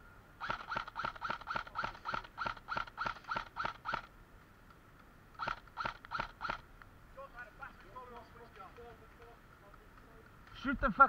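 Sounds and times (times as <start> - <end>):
airsoft rifle shots: 0.4 - 4.2, 5.3 - 6.7.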